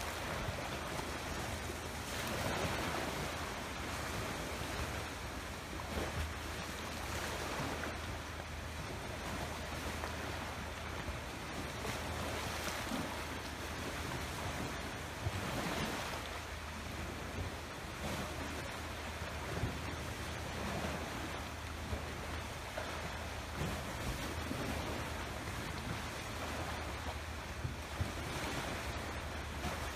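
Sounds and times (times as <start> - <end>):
waves washing against rocks: 0.0 - 5.1
wind rumbling on microphone: 0.0 - 29.9.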